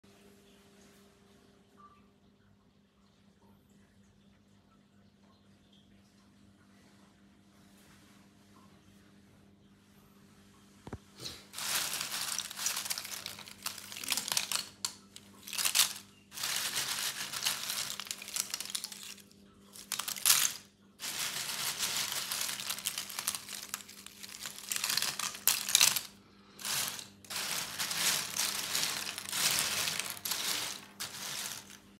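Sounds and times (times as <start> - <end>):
hand rustling dry bark chips: 11.5 - 32.0.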